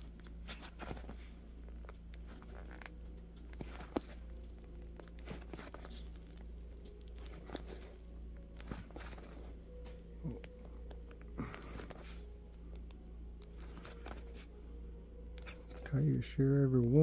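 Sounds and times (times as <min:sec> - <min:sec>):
faint low hum: 0:00.0 - 0:17.0
short high squeaks: 0:00.2 - 0:06.4, 0:07.2 - 0:10.6, 0:11.4 - 0:12.2, 0:13.5 - 0:14.5, 0:15.3 - 0:16.0.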